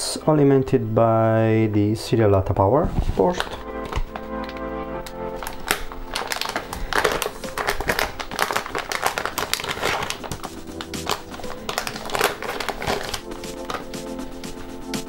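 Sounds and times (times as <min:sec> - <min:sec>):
background music: 0:00.0 - 0:15.0
plastic bag crinkling: 0:03.2 - 0:14.9.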